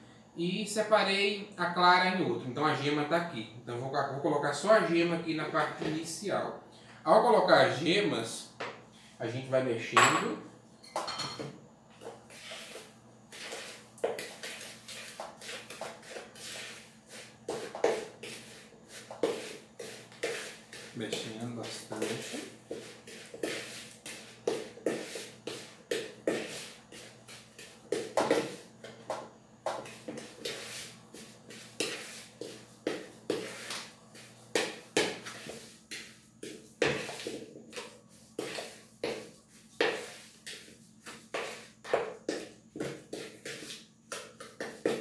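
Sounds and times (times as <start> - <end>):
utensil beating in mixing bowl: 12.0 - 45.0.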